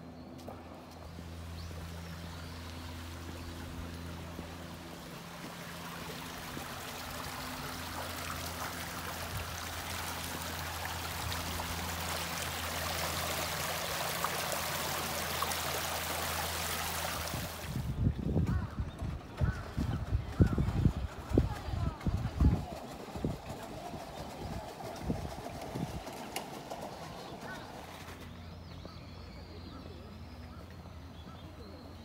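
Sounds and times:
water rushing over rocks: 5.7s - 17.8s.

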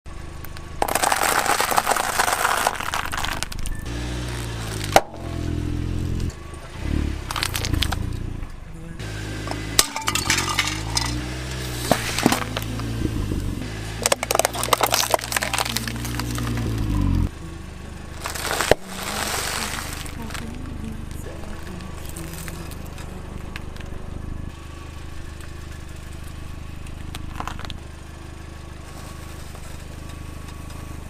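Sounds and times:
low engine hum: 0.0s - 31.0s
plastic cracking and crackling: 0.5s - 3.7s, 18.2s - 20.6s
tyre crunching dry pasta: 0.8s - 5.0s, 14.0s - 17.0s, 18.2s - 20.6s, 22.0s - 23.8s.

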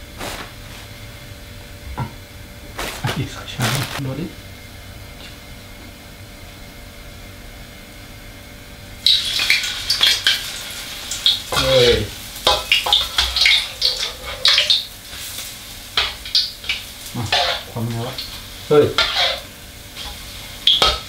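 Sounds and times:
food sizzling in hot oil: 9.0s - 21.0s
metal ladle scraping wok: 11.5s - 14.9s, 16.0s - 21.0s.

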